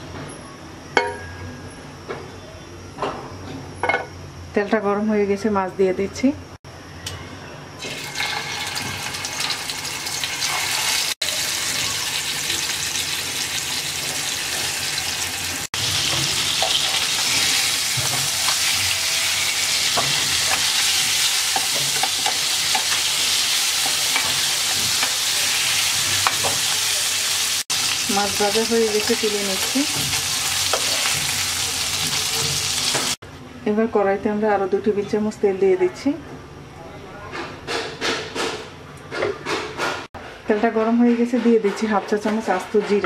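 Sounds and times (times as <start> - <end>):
fish sizzling in oil: 7.8 - 33.2.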